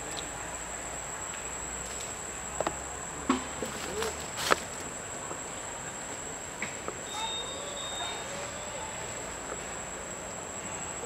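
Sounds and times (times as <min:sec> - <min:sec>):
high-pitched insect drone: 0:07.0 - 0:11.0.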